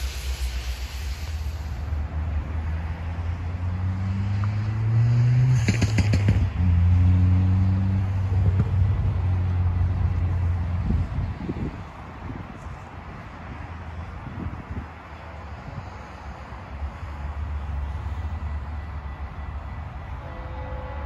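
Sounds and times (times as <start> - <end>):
engine hum rising in pitch: 1.4 - 11.9
wind on microphone: 8.1 - 16.0.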